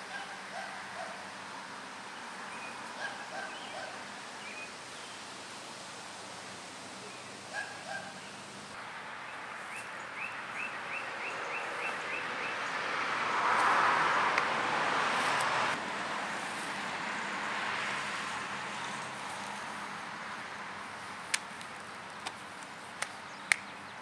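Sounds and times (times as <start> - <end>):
bird chirping: 2.2 - 5.2, 9.1 - 12.8, 23.2 - 24.0.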